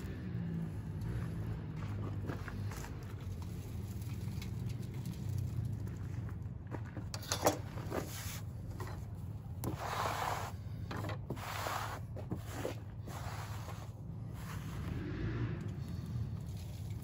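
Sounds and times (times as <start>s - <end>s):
hands scraping wood shavings: 9.6s - 10.6s, 11.2s - 17.0s.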